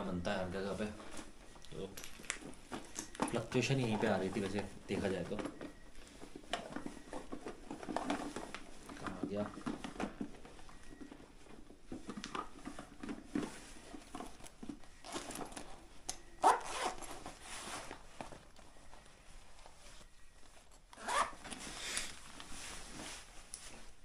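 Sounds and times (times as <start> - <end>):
bag rustling: 0.7 - 24.0
zipper rasping open: 16.4 - 17.2, 20.9 - 22.0.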